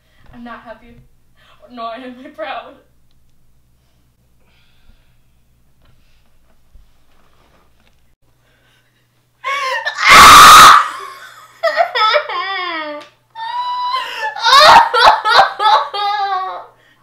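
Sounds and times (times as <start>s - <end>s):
woman wailing and screaming: 9.5s - 11.1s, 12.0s - 16.7s.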